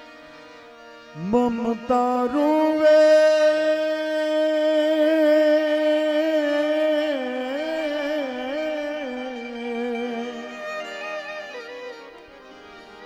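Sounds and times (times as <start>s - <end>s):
soft instrumental accompaniment: 0.0s - 13.0s
person singing a long note: 1.2s - 11.4s.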